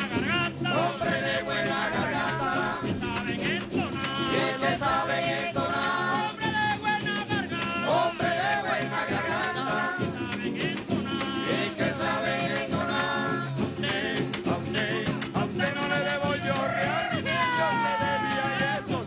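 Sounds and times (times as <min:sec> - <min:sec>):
maracas shaking: 0:00.0 - 0:19.0
person singing: 0:00.0 - 0:19.0.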